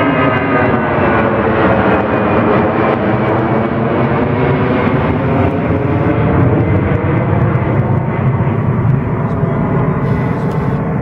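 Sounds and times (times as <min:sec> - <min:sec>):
jet airliner climbing overhead: 0:00.0 - 0:11.0.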